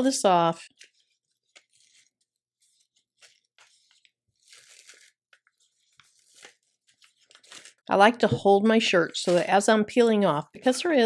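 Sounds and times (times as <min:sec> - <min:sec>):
film peeling crackle: 0:00.7 - 0:07.9.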